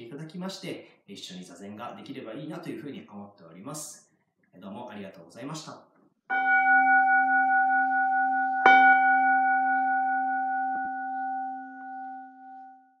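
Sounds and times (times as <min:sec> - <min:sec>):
bowl bell ringing: 0:06.3 - 0:13.0.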